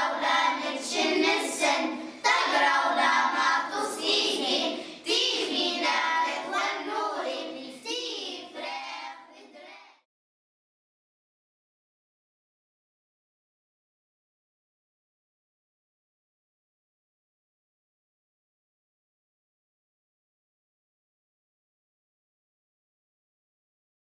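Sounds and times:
choir singing: 0:00.0 - 0:09.7.

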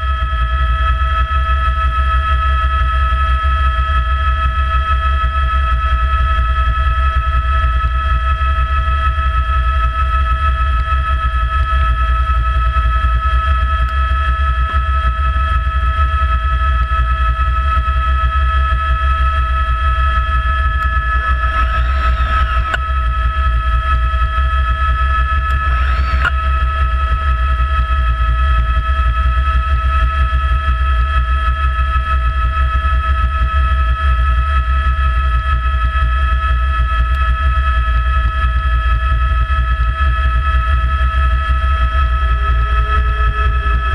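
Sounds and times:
helicopter rotor rumble: 0:00.0 - 0:43.9
high whine: 0:06.6 - 0:33.4, 0:38.4 - 0:43.9
faint rising and falling sound: 0:20.4 - 0:23.2, 0:25.3 - 0:26.3.

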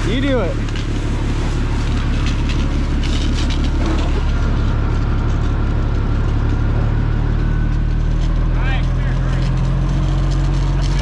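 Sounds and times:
water spraying from hose: 0:00.0 - 0:06.9
fire truck engine running: 0:00.0 - 0:11.0.

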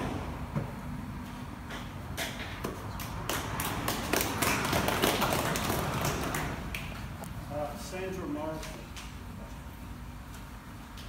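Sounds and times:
audience applauding: 0:03.2 - 0:06.9.

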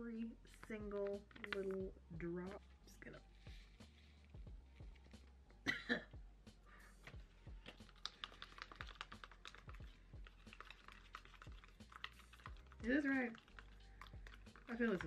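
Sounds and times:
spatula clicking against plastic cup: 0:00.8 - 0:01.8, 0:07.7 - 0:15.0.

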